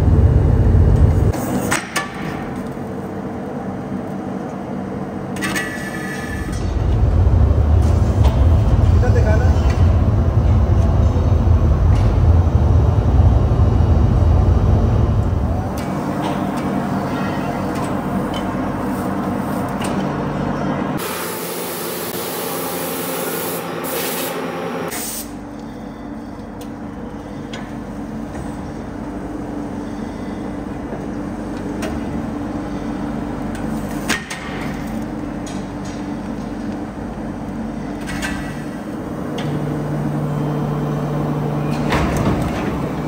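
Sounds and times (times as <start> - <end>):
machine humming: 0.0 - 1.4, 6.4 - 25.0, 38.8 - 43.0
loud hiss: 21.0 - 25.3.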